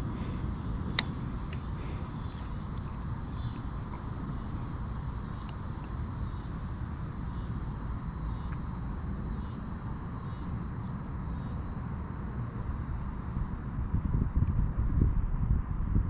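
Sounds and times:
wind buffeting microphone: 11.6 - 16.0.

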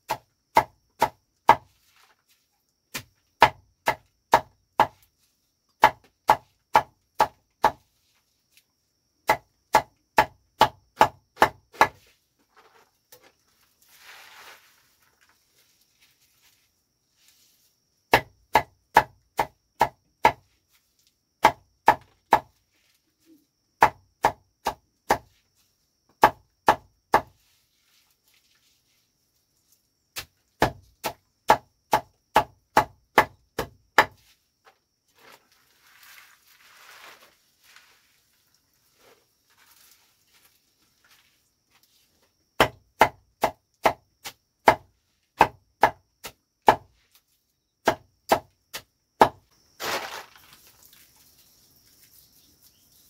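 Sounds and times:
greens and plastic rustling: 1.7 - 2.7, 12.0 - 17.8, 27.5 - 30.0, 34.2 - 42.4, 49.6 - 53.0
knife chopping: 30.2 - 34.2.

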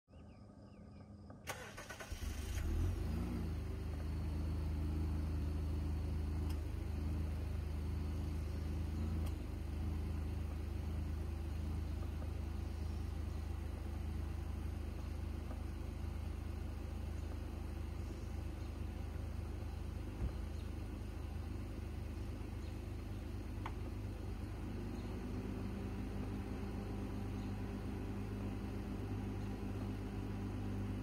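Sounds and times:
car engine starting and idling: 0.9 - 31.0.

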